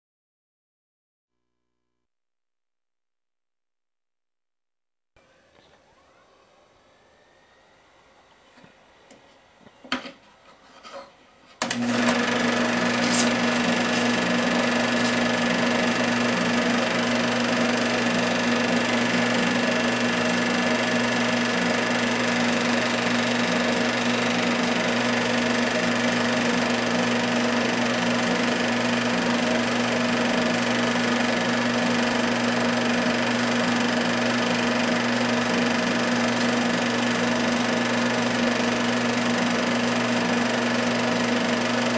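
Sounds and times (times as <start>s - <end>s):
film projector whirring: 11.6s - 41.9s.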